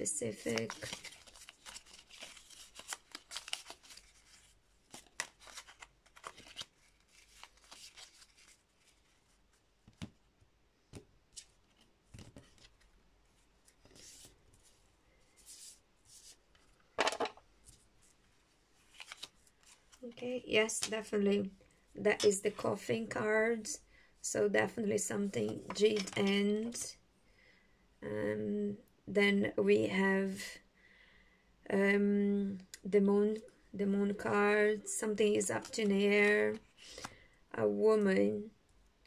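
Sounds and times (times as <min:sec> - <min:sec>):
cards shuffled on a table: 0:09.8 - 0:10.2, 0:10.9 - 0:12.9, 0:18.9 - 0:20.0.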